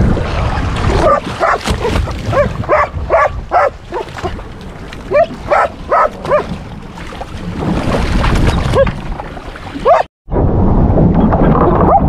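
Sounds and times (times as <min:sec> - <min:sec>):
dog yipping and barking: 0:02.3 - 0:04.1, 0:05.1 - 0:06.5, 0:09.8 - 0:10.1.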